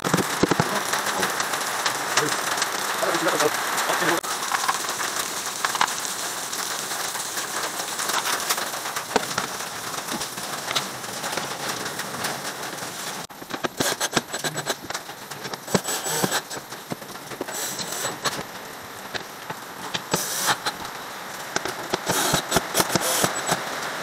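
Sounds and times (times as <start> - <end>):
steady hiss: 0.0 - 24.0
cordless drill driving screws: 13.7 - 14.9, 15.6 - 16.6, 17.4 - 18.4, 19.9 - 20.8, 21.9 - 23.6.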